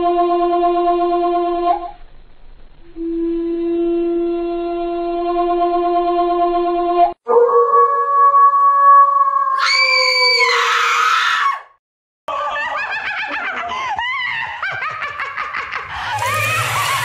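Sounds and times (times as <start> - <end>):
shrill shriek: 9.6 - 11.7, 16.0 - 17.0
woman screaming: 9.6 - 11.7, 15.9 - 17.0.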